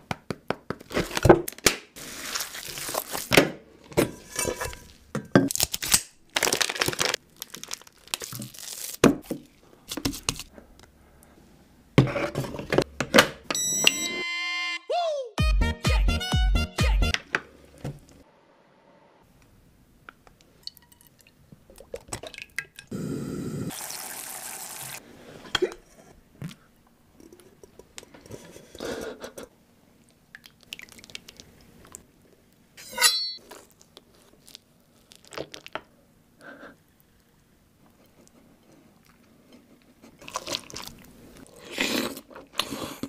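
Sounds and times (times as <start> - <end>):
liquid pouring: 23.7 - 25.0
sharp ringing clink: 32.8 - 33.4.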